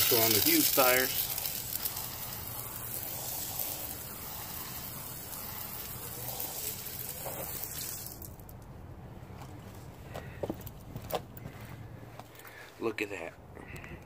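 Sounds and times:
hose spraying water on tire: 0:00.0 - 0:08.6.

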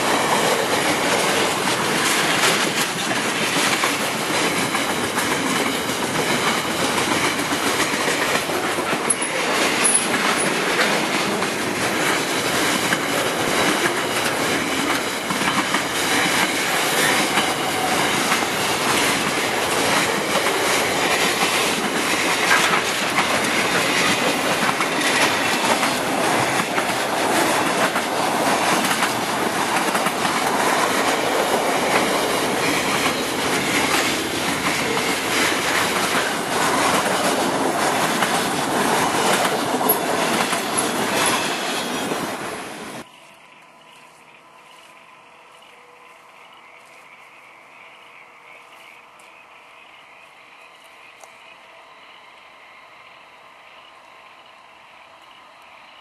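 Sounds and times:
clickety-clack over rail joints: 0:00.0 - 0:43.1
train wheels rumbling on rail: 0:00.0 - 0:56.0.

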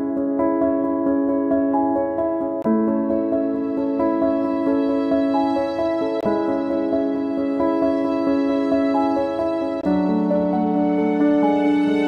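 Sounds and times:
instrumental music with held notes: 0:00.0 - 0:12.0.

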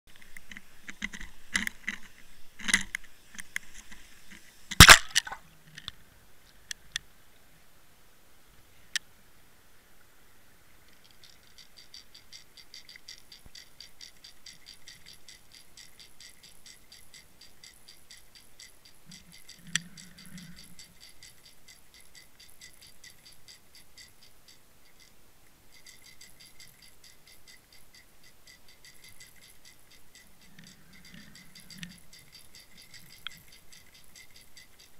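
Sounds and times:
fast ticking lure rattle: 0:04.7 - 0:05.4, 0:10.9 - 0:34.9.

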